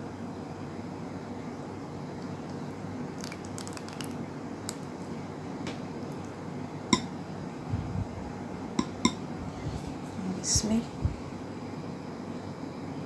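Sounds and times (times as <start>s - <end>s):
custard pouring squishing: 3.1s - 5.0s
dish clinking against glass: 8.8s - 9.2s.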